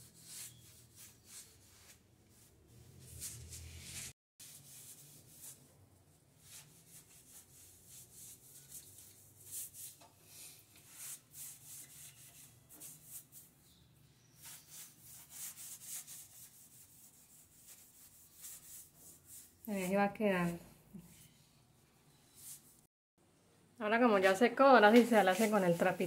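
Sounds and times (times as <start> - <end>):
sponge rubbing on tiles: 0.0 - 13.6, 14.2 - 20.0, 25.0 - 26.0.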